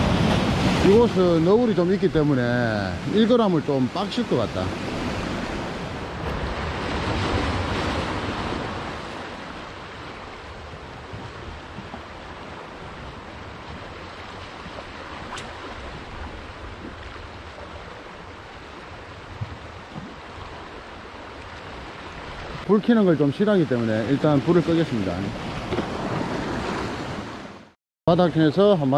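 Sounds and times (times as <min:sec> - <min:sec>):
wind on microphone: 0:00.0 - 0:02.3, 0:04.6 - 0:22.7.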